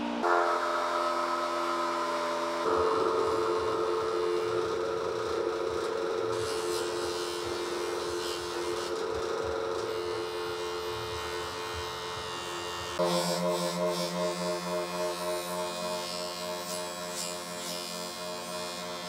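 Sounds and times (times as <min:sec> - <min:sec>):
background music chord: 0:00.0 - 0:08.8, 0:10.0 - 0:19.0
bench grinder motor whir: 0:01.5 - 0:19.0.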